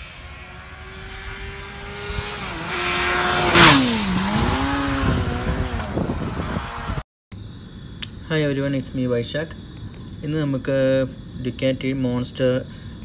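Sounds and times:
motorcycle passing at speed: 0.0 - 7.0.

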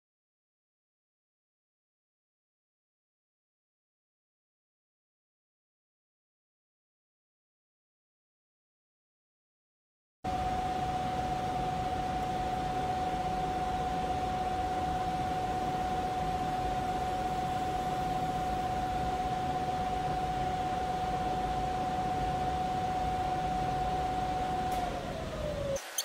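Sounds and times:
milling machine spindle running: 10.3 - 26.0.

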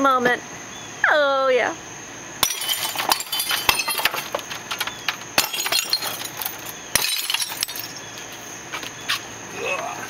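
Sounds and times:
porcelain shards cracking and clinking: 2.4 - 8.1.

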